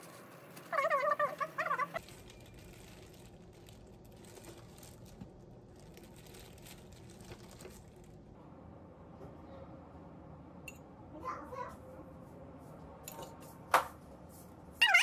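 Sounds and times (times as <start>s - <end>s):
crinkling and rustling: 0.0s - 8.4s.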